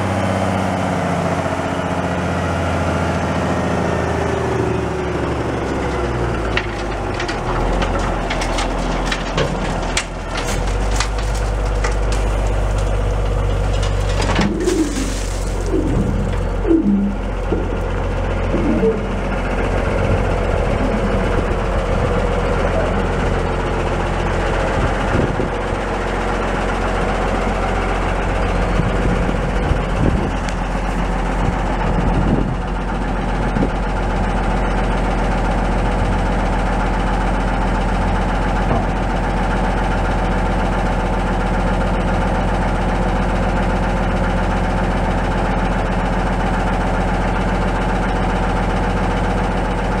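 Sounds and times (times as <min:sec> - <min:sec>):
diesel truck engine idling: 0:00.0 - 0:50.0
dull knocks: 0:06.5 - 0:19.2.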